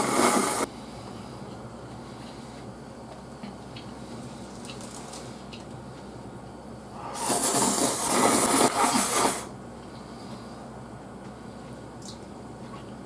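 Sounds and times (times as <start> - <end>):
person slurping noodles: 7.0 - 9.5.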